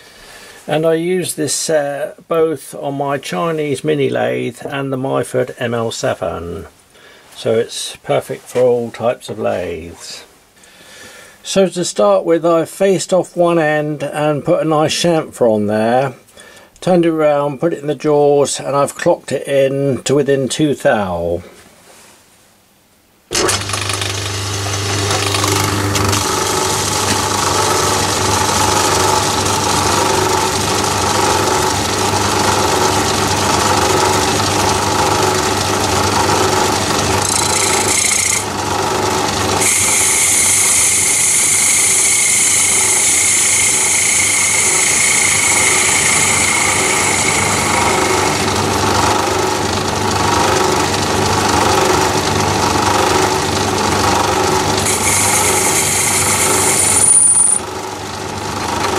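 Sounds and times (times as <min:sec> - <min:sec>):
lathe motor hum: 0:23.3 - 0:58.9
high hissing cut: 0:39.6 - 0:48.6, 0:54.8 - 0:57.6.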